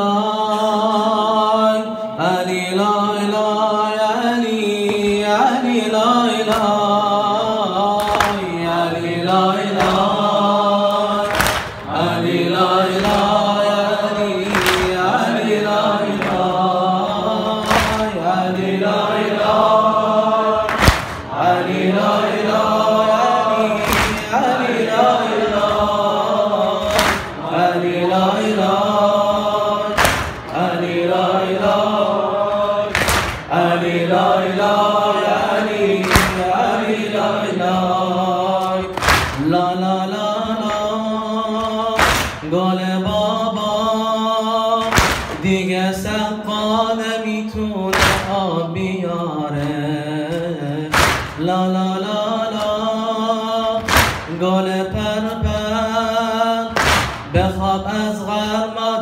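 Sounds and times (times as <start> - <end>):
man chanting into a microphone: 0.0 - 18.9, 32.6 - 59.0
voices chanting along: 0.0 - 59.0
heavy rhythmic thumps: 9.4 - 18.6, 20.6 - 22.9, 23.6 - 30.9, 32.9 - 33.8, 35.3 - 37.1, 38.7 - 43.4, 44.8 - 46.3, 47.6 - 49.0, 49.6 - 52.9, 53.6 - 58.6.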